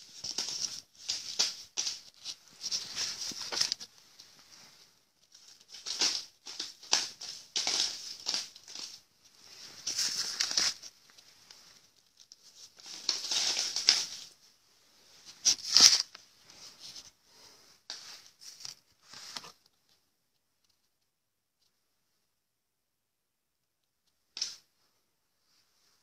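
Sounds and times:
banknotes rustling: 0.0s - 14.5s, 15.2s - 19.6s.

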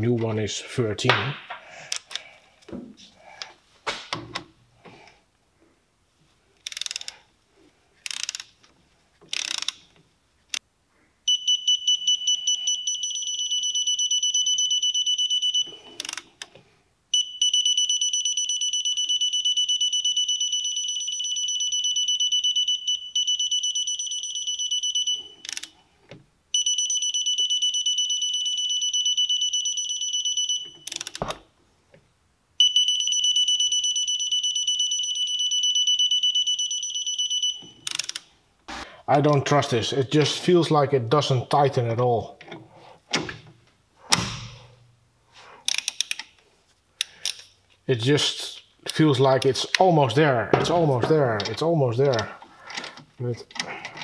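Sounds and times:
ratchet wrench clicking: 6.6s - 7.2s, 8.0s - 8.5s, 9.3s - 9.8s, 30.9s - 31.2s, 37.9s - 38.2s, 45.7s - 46.2s.

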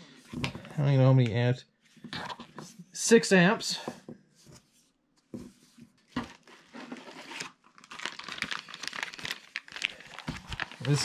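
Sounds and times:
plastic bag crinkling: 6.3s - 11.0s.

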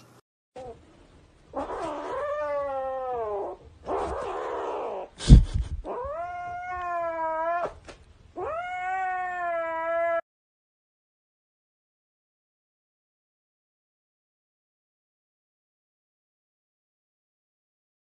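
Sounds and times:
kitten yowling: 1.6s - 5.1s, 5.8s - 7.8s, 8.4s - 10.2s.

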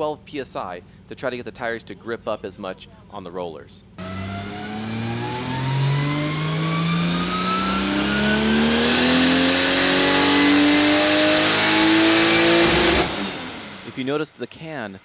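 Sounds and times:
car engine full-throttle pull: 4.0s - 14.1s.

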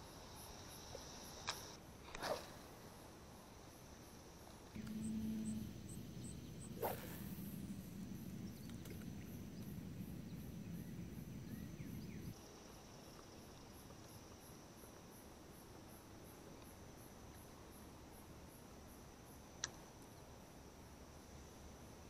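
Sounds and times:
crickets chirping: 0.0s - 22.0s
low hum: 4.7s - 12.3s.

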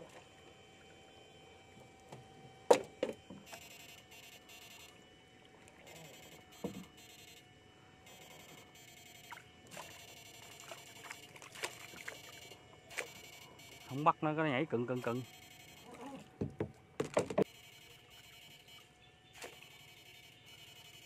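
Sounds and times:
net splashing in water: 9.3s - 13.1s.

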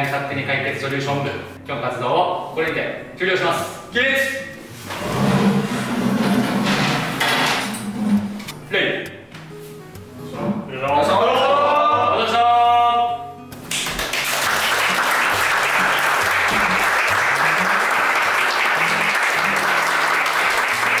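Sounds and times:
background music: 0.0s - 21.0s
group of voices calling out: 11.0s - 13.2s
applause: 13.7s - 21.0s.

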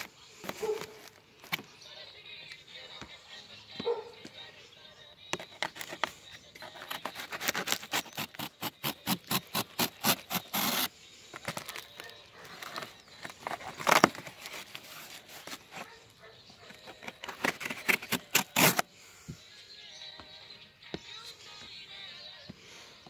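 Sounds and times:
knife cutting cardboard and tape: 0.0s - 1.7s, 5.3s - 16.0s, 16.6s - 18.9s
cardboard tearing: 5.5s - 15.9s, 16.8s - 18.8s.

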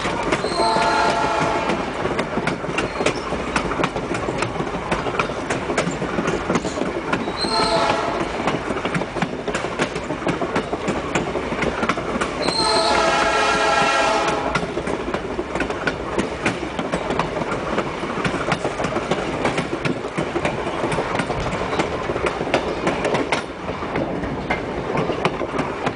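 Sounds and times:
train wheels clicking over rail joints: 0.0s - 25.9s
locomotive horn blasts: 0.4s - 1.9s, 7.4s - 8.4s, 12.4s - 14.7s.

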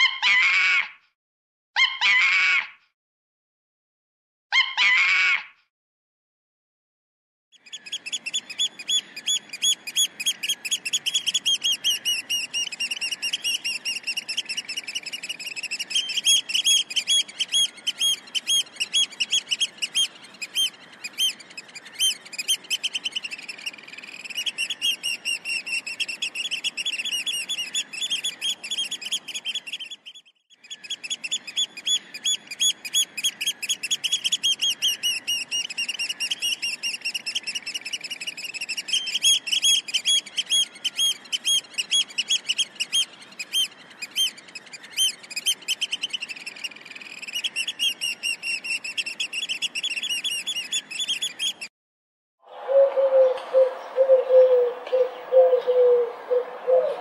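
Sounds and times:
bird chirping rapidly: 7.6s - 51.7s.

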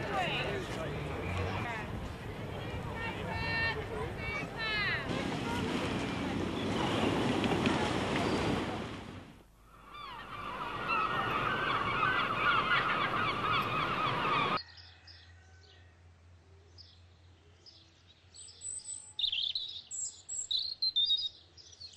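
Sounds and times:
chorus of bird calls: 9.7s - 16.0s
songbird chirping and trilling: 9.8s - 21.9s.

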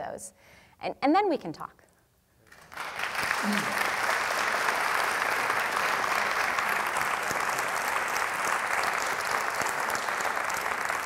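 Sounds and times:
audience applauding: 2.5s - 11.0s.

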